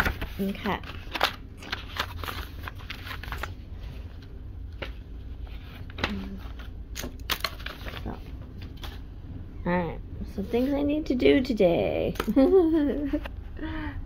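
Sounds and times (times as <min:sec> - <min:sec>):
paper rustling: 0:00.0 - 0:09.0.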